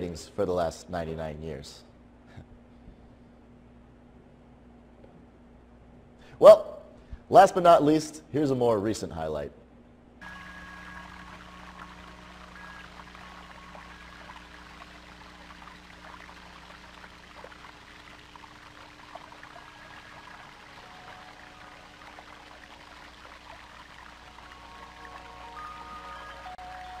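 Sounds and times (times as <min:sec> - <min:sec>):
low steady hum: 0:00.0 - 0:27.0
water trickling and splashing: 0:10.2 - 0:27.0.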